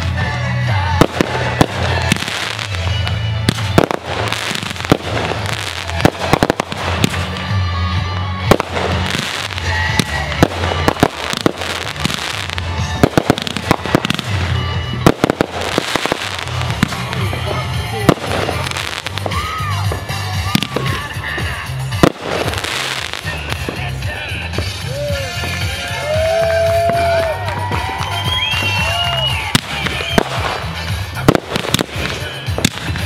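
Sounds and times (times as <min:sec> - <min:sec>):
fireworks bangs and crackles: 0:00.0 - 0:33.0.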